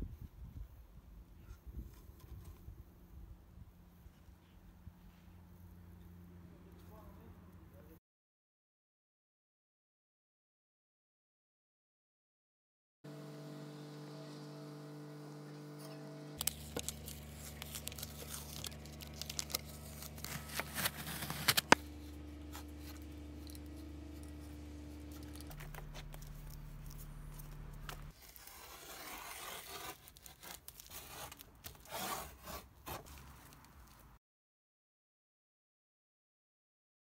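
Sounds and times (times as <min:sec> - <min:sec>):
low steady hum: 0:13.1 - 0:28.2
masking tape tearing: 0:16.4 - 0:34.0
plastic film crinkling: 0:16.4 - 0:34.2.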